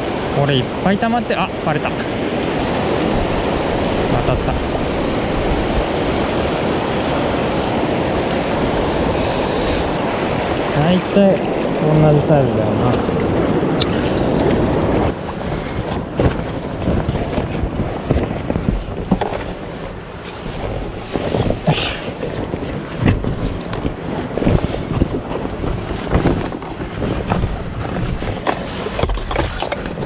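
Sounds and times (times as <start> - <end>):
stream water rushing: 0.0 - 30.0
wind buffeting microphone: 0.0 - 30.0
handling knocks and rustles: 18.1 - 30.0.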